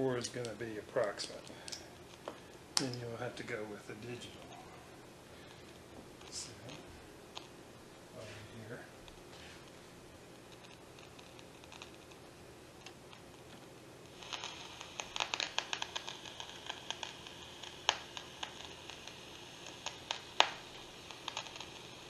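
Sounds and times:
radio static crackling: 0.0 - 7.5, 10.4 - 22.0
clicks and pops from speaker: 14.1 - 19.1, 19.7 - 21.9.

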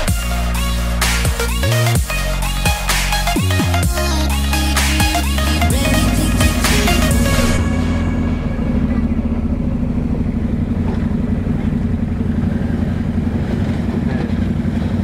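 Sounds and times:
atv engines running: 9.1 - 15.0.

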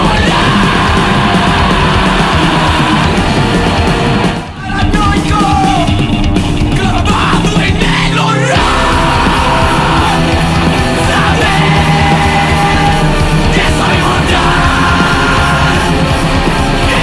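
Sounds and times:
screamed vocals: 0.0 - 3.4, 6.8 - 16.1
punk band playing loud: 0.0 - 17.0.

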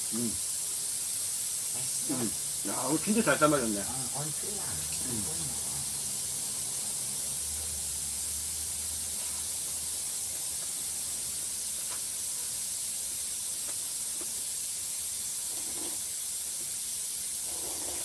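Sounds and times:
steady high hiss: 0.0 - 18.0.

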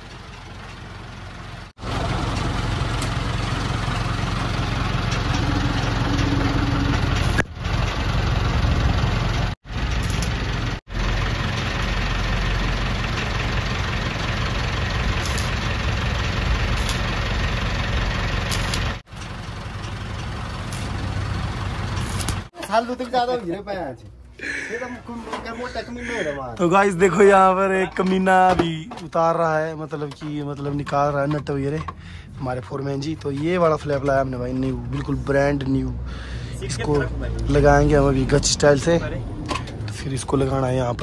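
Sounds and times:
diesel engine idling: 0.0 - 22.5, 29.2 - 41.0
arc welding crackling and hissing: 9.7 - 10.8, 15.0 - 17.4, 18.3 - 19.0, 20.6 - 22.9.

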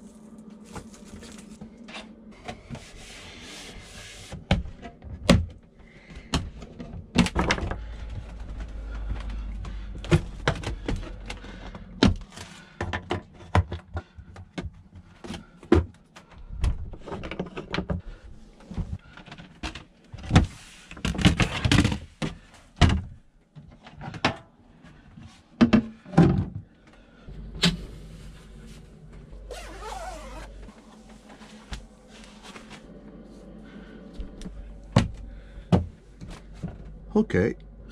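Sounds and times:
rustling of handled items: 0.0 - 4.4.

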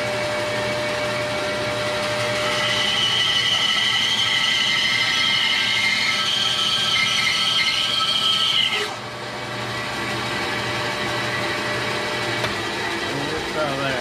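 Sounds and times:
bandsaw blade cutting wood: 2.0 - 9.0.

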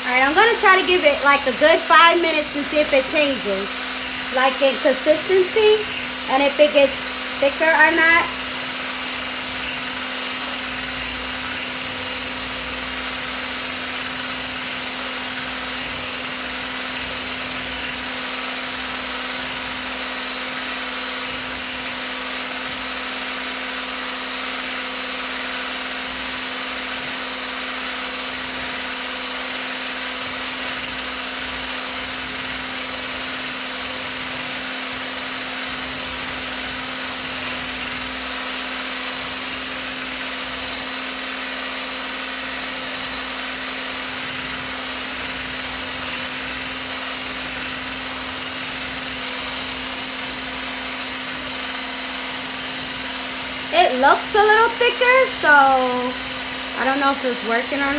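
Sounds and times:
electric hand blender whisking: 0.0 - 57.9.

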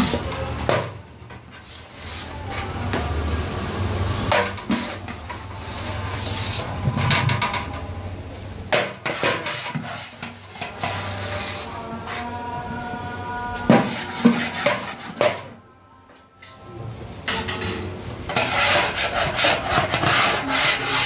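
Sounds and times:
kitchen utensils clattering: 8.7 - 11.6, 13.7 - 15.6, 17.2 - 21.0.

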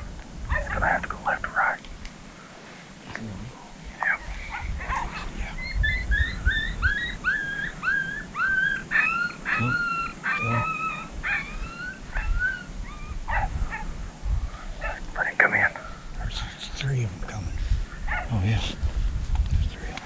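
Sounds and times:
low wind rumble: 0.0 - 20.0
coyote pup whines and yips: 4.0 - 13.9.

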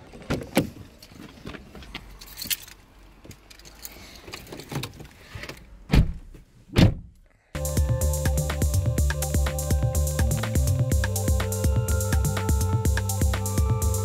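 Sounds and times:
electronic music with steady beat: 7.6 - 14.0.

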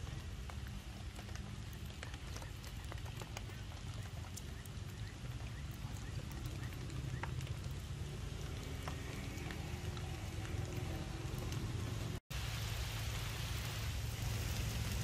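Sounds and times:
rain pattering: 0.0 - 15.0.

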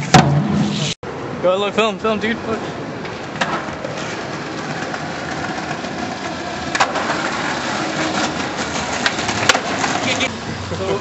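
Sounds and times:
skateboard wheels rolling on concrete: 0.0 - 11.0
skateboard clack: 3.0 - 10.3.

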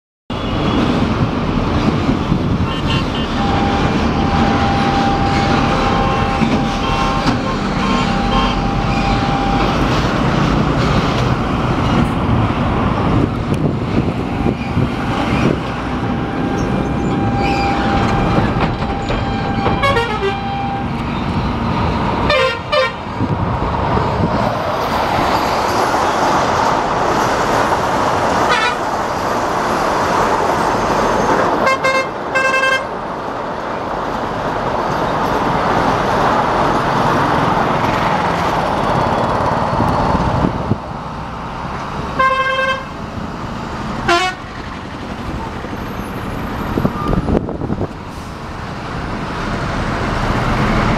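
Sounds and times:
train passing at high speed: 3.2 - 50.9
train horn: 3.3 - 9.6, 19.3 - 20.8, 22.3 - 23.0, 42.2 - 42.9, 44.1 - 44.4.

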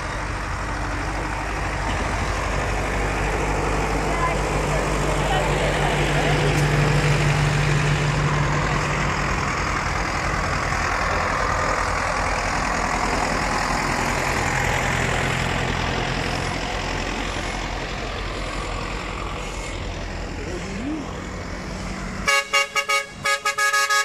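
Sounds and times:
tractor diesel engines running: 0.0 - 24.0.

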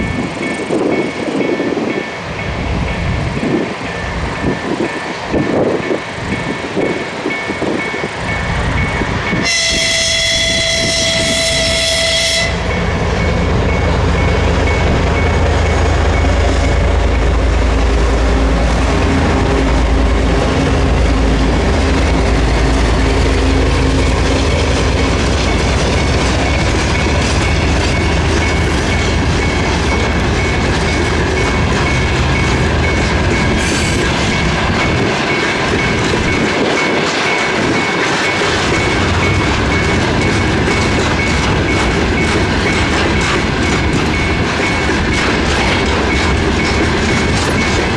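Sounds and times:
train rumbling over rails: 0.0 - 47.9
locomotive horn: 9.4 - 12.9.

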